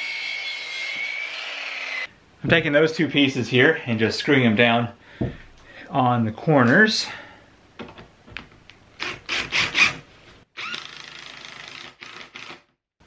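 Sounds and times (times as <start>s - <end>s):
cordless drill driving screws: 10.6s - 12.7s.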